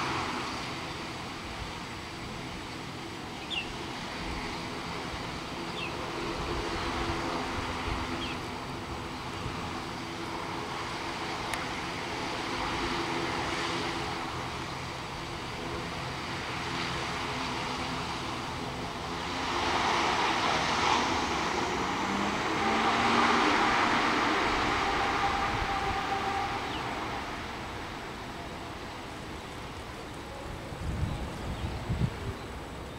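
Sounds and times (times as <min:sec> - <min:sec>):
turboprop engines droning: 0:00.0 - 0:32.9.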